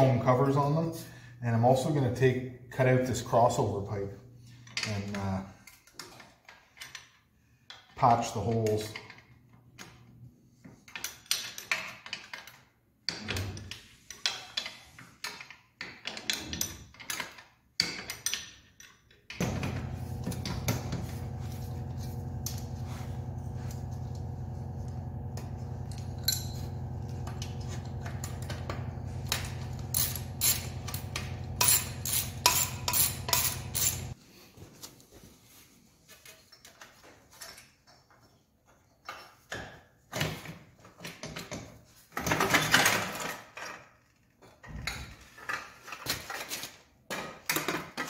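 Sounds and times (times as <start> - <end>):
steady low hum: 19.4 - 34.2
tools clinking against metal: 29.3 - 34.2.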